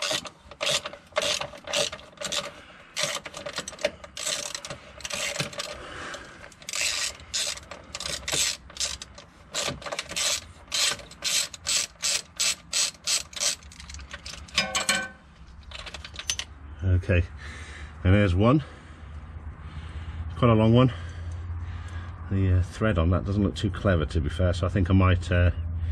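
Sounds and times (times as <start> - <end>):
socket ratchet clicking: 0.0 - 5.8, 6.5 - 14.6.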